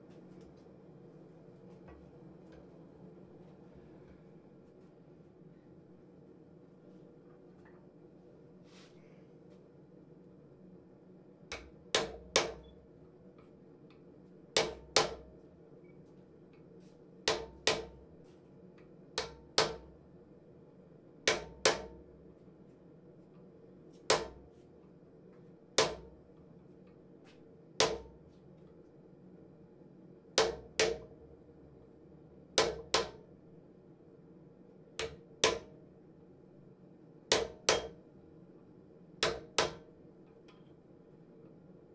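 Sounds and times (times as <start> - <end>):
hammer striking metal on an anvil: 37.3 - 38.0, 39.2 - 39.8.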